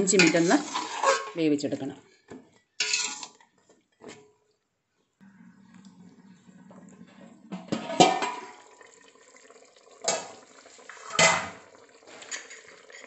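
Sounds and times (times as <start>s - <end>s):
pot lid clanking: 7.7s - 8.6s.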